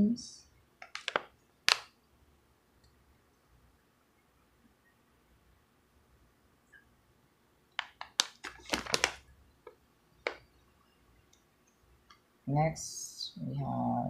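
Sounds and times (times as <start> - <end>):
handling crinkles and clicks: 0.8 - 1.9, 7.8 - 10.4.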